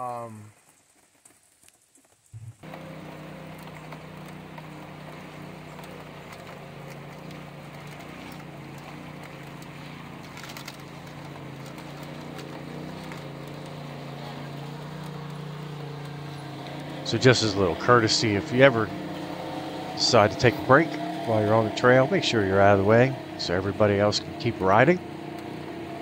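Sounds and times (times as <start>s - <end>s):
rain pattering: 0.0s - 26.0s
utv engine idling: 2.6s - 26.0s
vehicles driving up: 2.6s - 26.0s.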